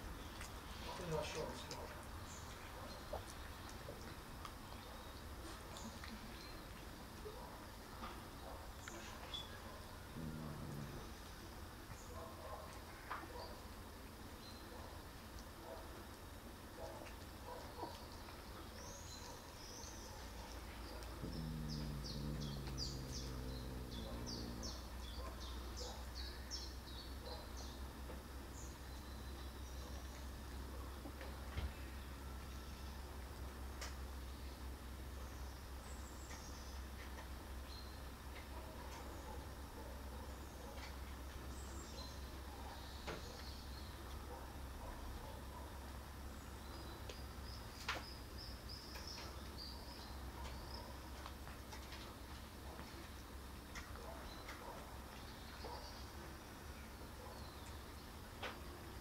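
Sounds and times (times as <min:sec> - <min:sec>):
small birds chirping: 0:00.0 - 0:59.0
steady low hum: 0:20.4 - 0:26.1
steady low rumble: 0:21.0 - 0:25.8.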